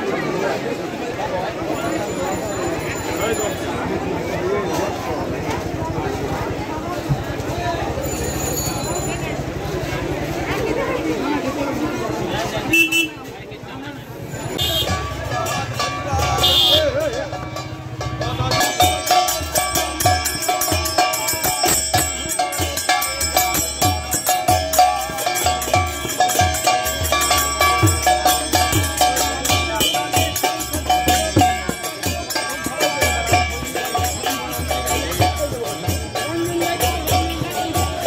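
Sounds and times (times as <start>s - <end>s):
steady drum beat: 14.4s - 38.0s
held melody line: 14.6s - 38.0s
metal percussion shimmer: 15.0s - 38.0s.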